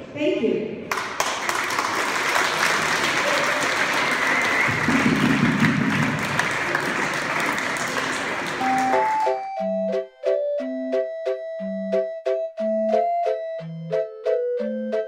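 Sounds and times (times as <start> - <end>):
audience applauding: 0.9 - 9.6.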